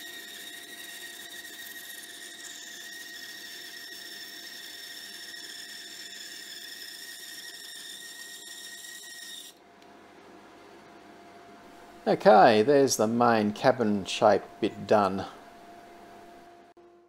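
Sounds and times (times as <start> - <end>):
bandsaw cutting wood: 0.0 - 9.6.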